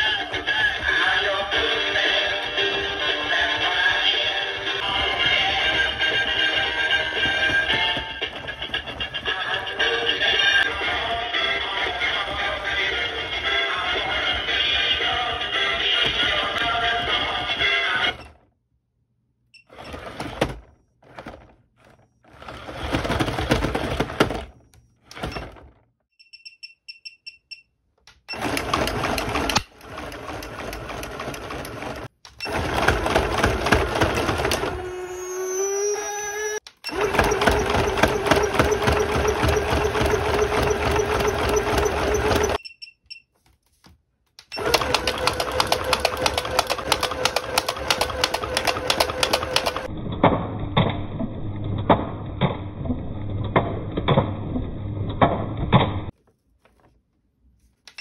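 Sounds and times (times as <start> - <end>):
toy mechanisms rattling: 22.3 - 24.4, 44.5 - 49.9.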